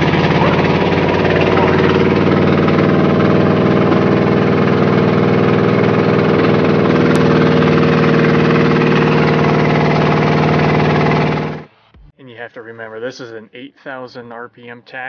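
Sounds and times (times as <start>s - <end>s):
truck engine idling: 0.0s - 11.7s.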